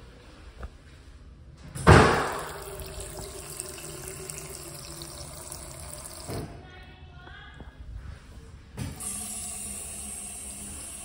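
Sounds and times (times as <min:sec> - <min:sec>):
water running into sink: 0:01.9 - 0:06.5, 0:09.0 - 0:11.0.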